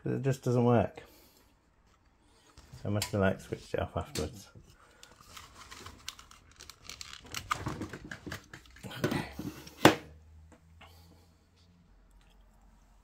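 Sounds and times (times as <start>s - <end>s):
cables rustling against metal: 1.4s - 8.9s
plastic connectors clicking: 5.0s - 8.8s.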